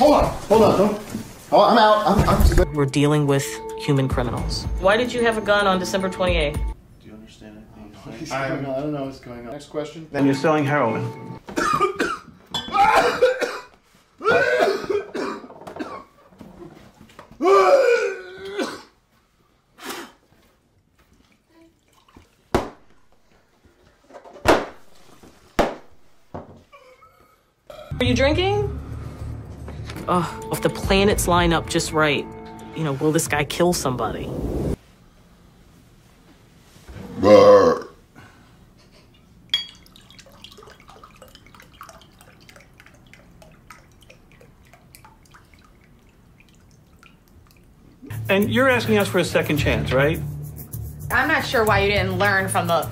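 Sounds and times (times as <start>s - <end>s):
water pouring into glass: 39.5s - 47.6s
liquid dripping plinks: 39.5s - 48.1s.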